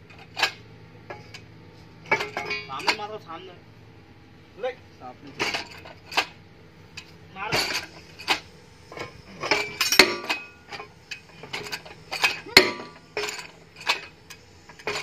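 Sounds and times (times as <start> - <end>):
steel bar striking metal housing: 9.3 - 14.1.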